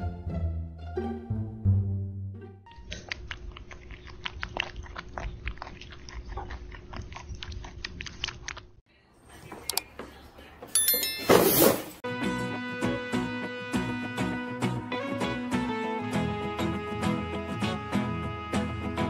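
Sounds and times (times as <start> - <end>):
pet crunching food: 2.8 - 8.8.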